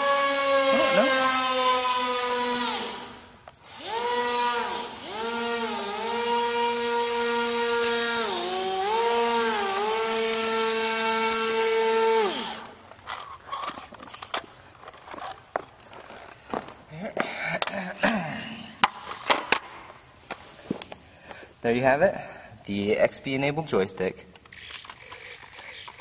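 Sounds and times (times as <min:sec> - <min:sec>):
electric motor and propeller whining: 0:00.0 - 0:14.1.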